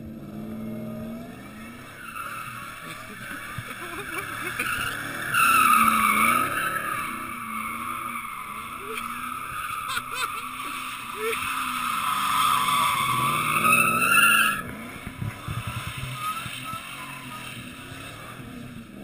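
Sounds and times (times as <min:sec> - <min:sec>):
engine revving: 0:00.0 - 0:19.0
tyres squealing: 0:01.8 - 0:14.8.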